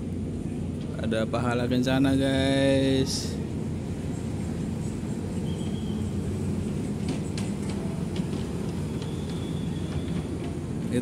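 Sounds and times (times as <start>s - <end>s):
bus diesel engine rumbling: 0.0s - 11.0s.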